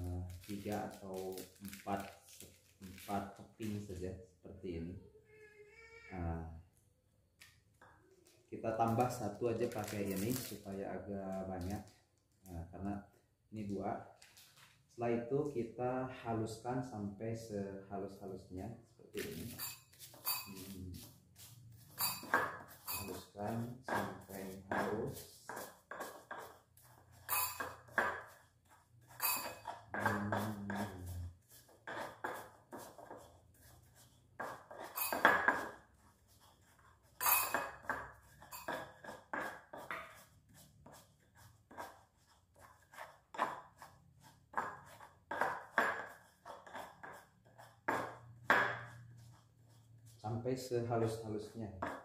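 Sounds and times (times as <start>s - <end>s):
stone pestle grinding in mortar: 19.2s - 51.2s, 51.8s - 52.0s.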